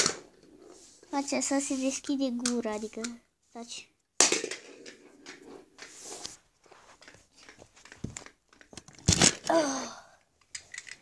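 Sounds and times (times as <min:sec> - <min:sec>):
plastic toy clicks and rustles: 0:02.4 - 0:03.2, 0:07.0 - 0:09.5, 0:10.4 - 0:11.0.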